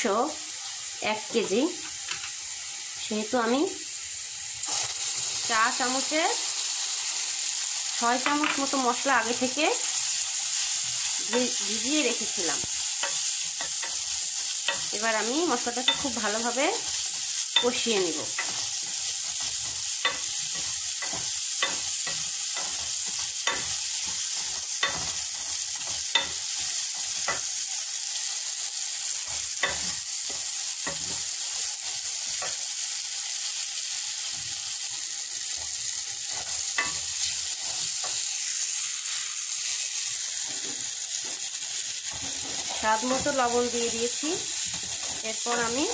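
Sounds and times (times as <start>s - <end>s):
paste sizzling in hot oil: 0.0s - 45.9s
wooden spatula scraping a pot: 42.1s - 43.3s.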